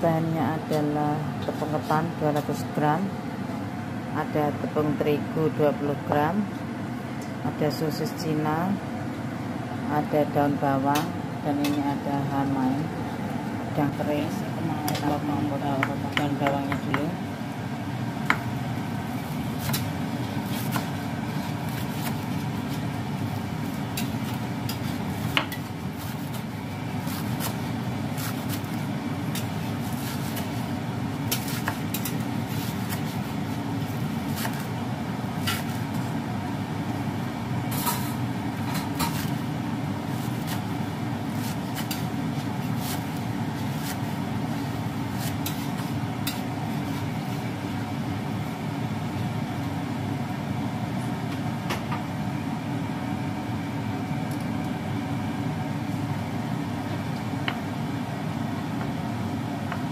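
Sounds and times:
knife chopping on wooden board: 25.3 - 25.6.

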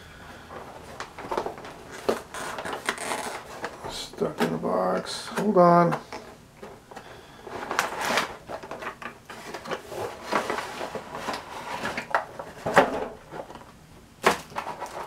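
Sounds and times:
plastic tray crinkling and clacking: 7.6 - 15.0.

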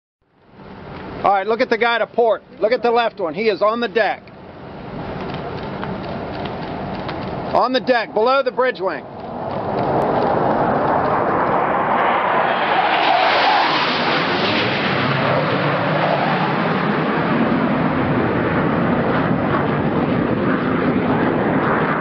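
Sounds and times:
jet low pass rushing: 0.5 - 22.0.

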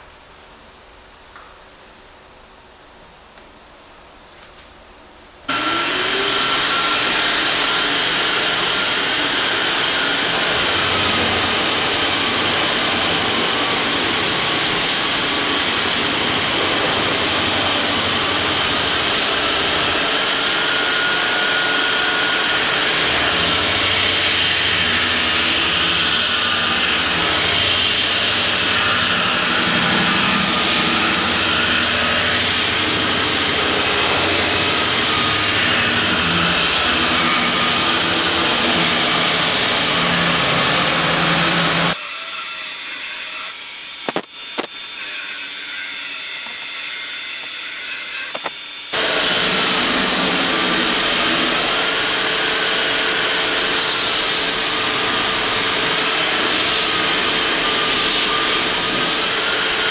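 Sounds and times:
dust extractor running: 5.5 - 42.0, 48.4 - 59.9
power tool cutting wood: 5.5 - 59.9.

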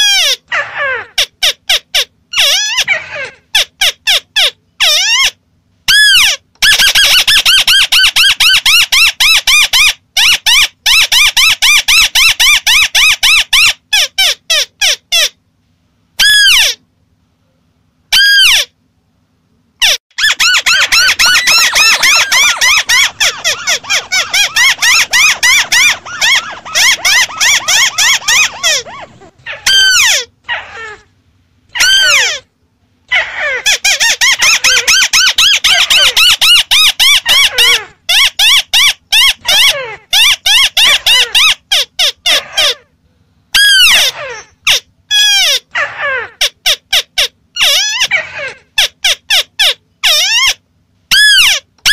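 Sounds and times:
crakes calling squeaky notes: 19.8 - 31.0.

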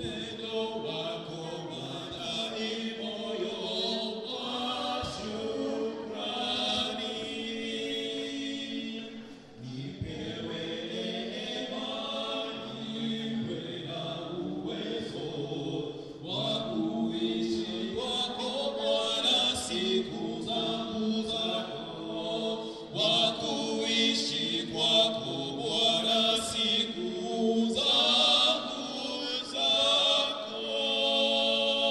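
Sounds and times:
congregation singing a hymn: 0.0 - 31.9.

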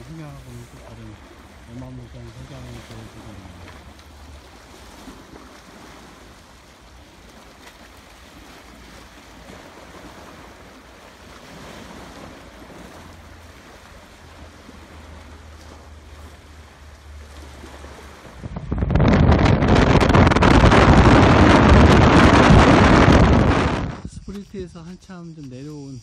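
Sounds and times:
waves lapping against rocks: 0.0 - 26.0
low wind rumble: 12.4 - 25.3.

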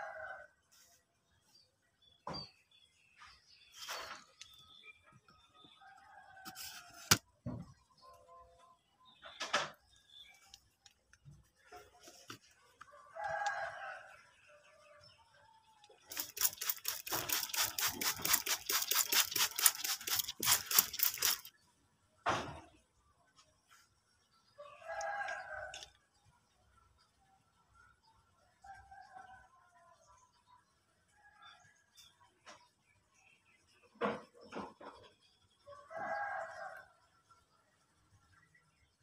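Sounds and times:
rooster crowing: 13.0 - 14.1, 35.7 - 36.9
fast scratchy strokes: 16.1 - 21.5.

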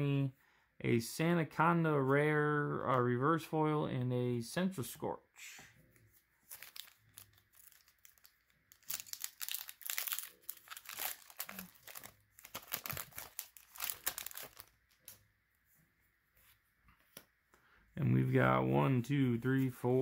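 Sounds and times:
foil wrapper crinkling: 6.4 - 15.2.

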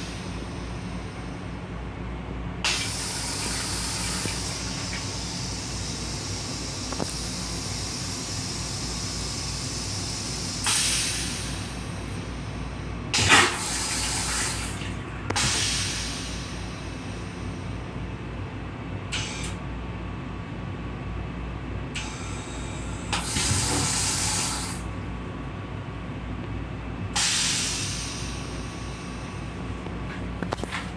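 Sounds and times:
low train hum: 0.0 - 30.9
toilet rinse water hissing: 2.7 - 12.0, 13.2 - 16.6, 23.2 - 24.8.

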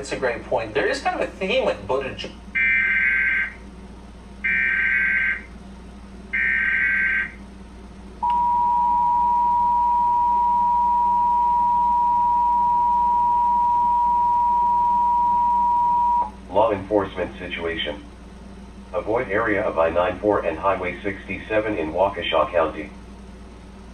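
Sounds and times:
two-tone attention signal: 8.2 - 16.3.

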